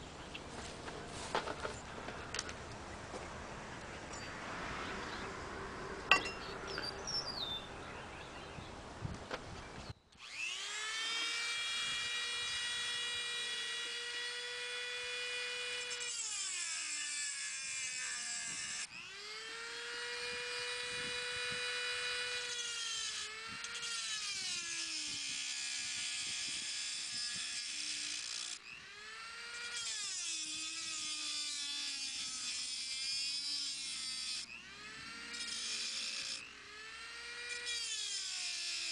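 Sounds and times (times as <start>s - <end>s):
rotary tool whining: 9.3s - 38.9s
bit grinding metal: 10.2s - 38.9s.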